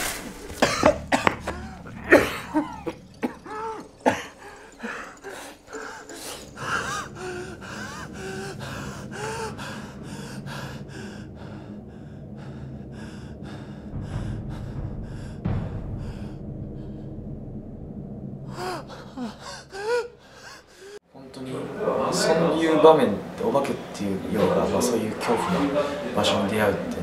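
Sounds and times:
low hum: 0:00.0 - 0:21.0
man gasping and panting: 0:19.1 - 0:21.0.

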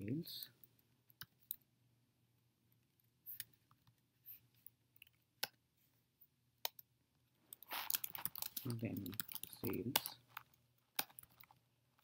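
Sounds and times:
keyboard and mouse clicks: 0:01.1 - 0:01.6, 0:07.5 - 0:11.6.

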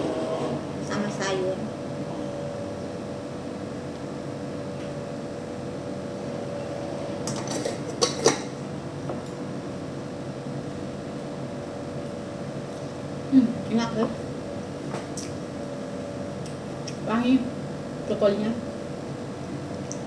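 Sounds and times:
kitchen room hum: 0:00.0 - 0:20.0
utensils clinking on dishes: 0:07.3 - 0:08.5.

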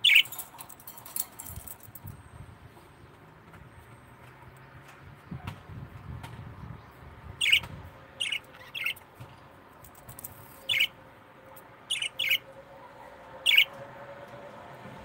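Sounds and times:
parrots chirping: 0:00.0 - 0:00.5, 0:07.4 - 0:09.1, 0:10.4 - 0:11.0, 0:11.9 - 0:12.4, 0:13.4 - 0:13.7.

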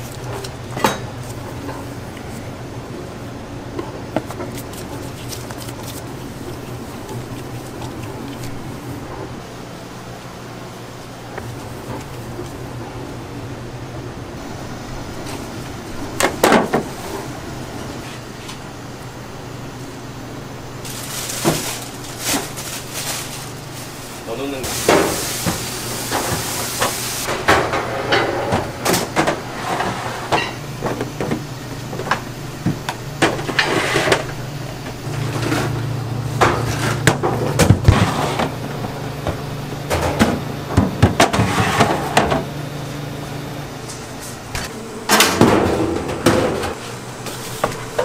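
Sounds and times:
kitchen tools and dishes clattering: 0:00.0 - 0:01.9, 0:24.6 - 0:30.6
low hum of kitchen equipment: 0:00.0 - 0:48.0.

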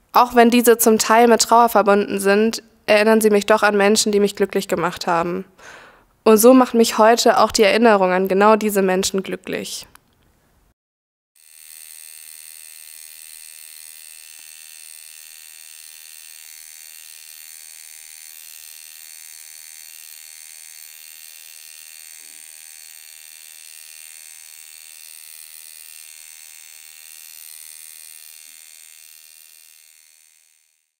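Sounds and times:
tattoo machine buzzing: 0:11.4 - 0:30.9.

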